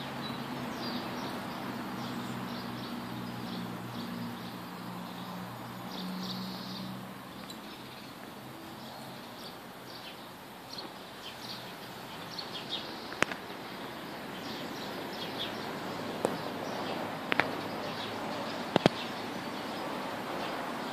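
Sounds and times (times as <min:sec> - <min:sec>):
birds chirping: 0:00.0 - 0:20.9
outdoor background hiss: 0:00.0 - 0:20.9
sharp clicks: 0:18.7 - 0:19.0.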